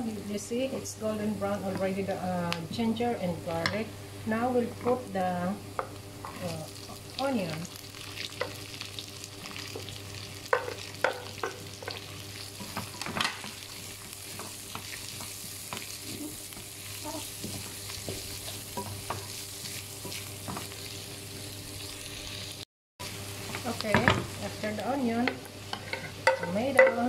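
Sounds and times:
onion sizzling in hot oil: 0.0 - 27.0
spatula knocking on wok: 10.5 - 12.0, 26.2 - 27.0.

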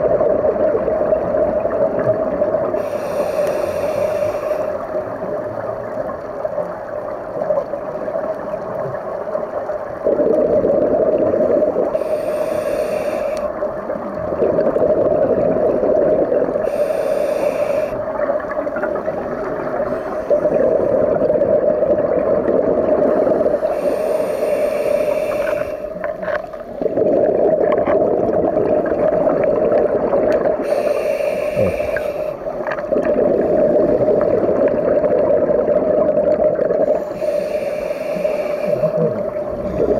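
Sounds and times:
gurgling exhaled bubbles: 0.0 - 39.9
steady hum: 2.4 - 5.5, 9.8 - 39.9
regulator inhale hiss: 2.8 - 5.1, 11.8 - 13.6, 16.5 - 18.2, 19.7 - 21.1, 23.0 - 26.8, 30.6 - 32.7, 36.8 - 39.9.

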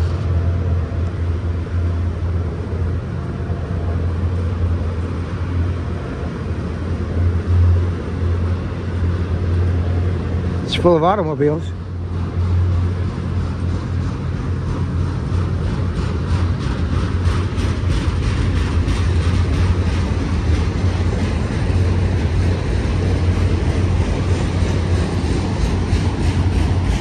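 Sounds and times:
freight cars low rumble: 0.0 - 27.0
steel wheels clicking: 12.4 - 27.0.

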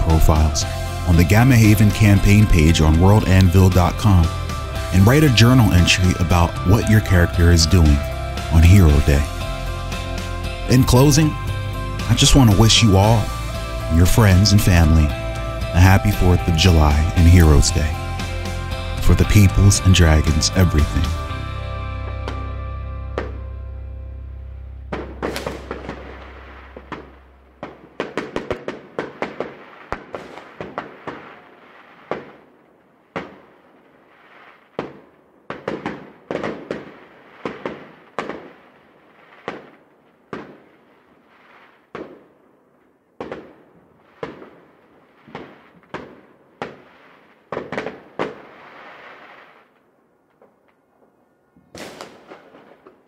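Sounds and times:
fireworks bangs and crackles: 0.0 - 9.3, 24.9 - 49.8, 51.7 - 53.0.

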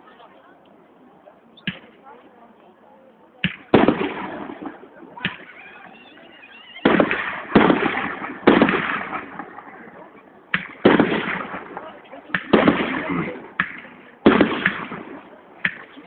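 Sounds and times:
small firework pops: 1.6 - 1.9, 3.4 - 5.5, 10.5 - 16.0
firework booms: 3.4 - 6.1, 6.8 - 16.0.

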